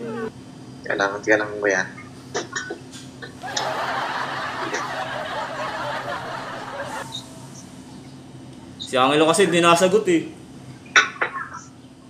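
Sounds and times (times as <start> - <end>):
man stifling laughter: 3.4 - 7.1.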